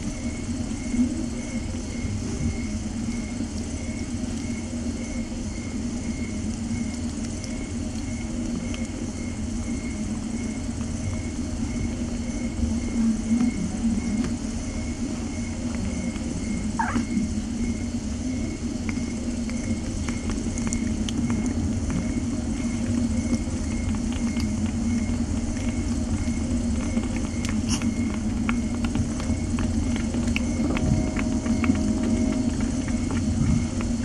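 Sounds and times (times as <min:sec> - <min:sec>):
kitten squeaking: 0:16.8 - 0:17.2
cat purring: 0:20.0 - 0:34.0.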